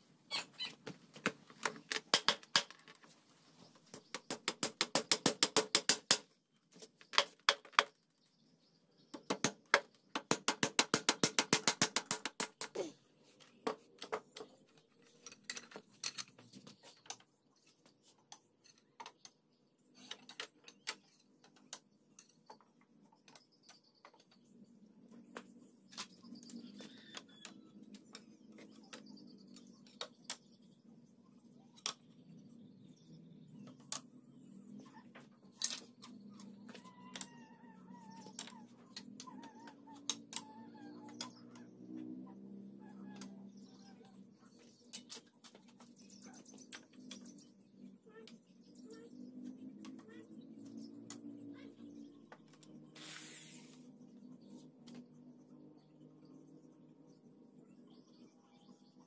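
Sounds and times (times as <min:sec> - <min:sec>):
hammer driving nails into wood: 0:04.2 - 0:06.3, 0:09.2 - 0:12.8.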